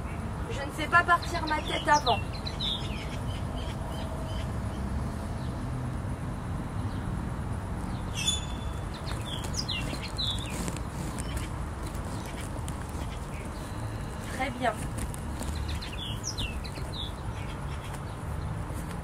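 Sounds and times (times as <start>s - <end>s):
bird chirps: 1.1s - 4.8s, 7.8s - 14.6s, 15.4s - 18.2s.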